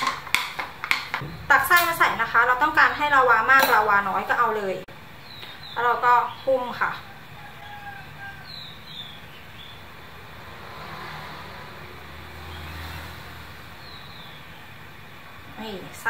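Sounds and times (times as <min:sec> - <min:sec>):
low vehicle rumble: 0:01.2 - 0:03.5, 0:04.8 - 0:15.6
bird chirps: 0:05.2 - 0:09.9, 0:13.8 - 0:14.8.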